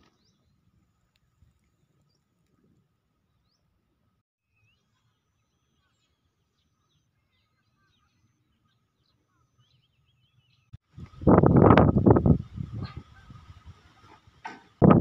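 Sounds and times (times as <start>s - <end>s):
faint bird chirps: 4.4s - 10.7s.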